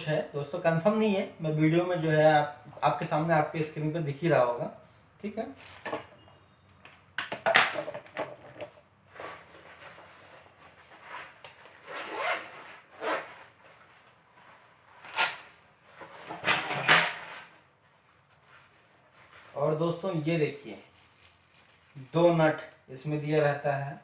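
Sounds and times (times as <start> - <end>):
nylon bag rustling: 18.4 - 22.2.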